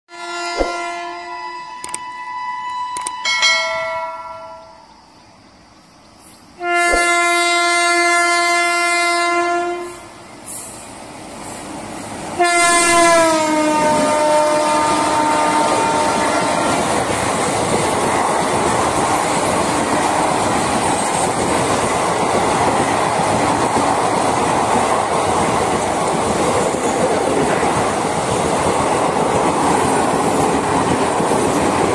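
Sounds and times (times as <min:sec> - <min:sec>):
multi-tone locomotive horn: 0:00.1 - 0:03.3, 0:06.6 - 0:10.2, 0:12.4 - 0:17.0
train rushing and rumbling past: 0:03.4 - 0:31.9.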